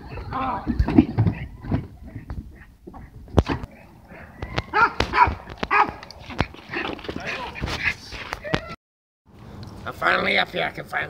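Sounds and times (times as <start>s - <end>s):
dog yipping and barking: 4.1s - 6.0s.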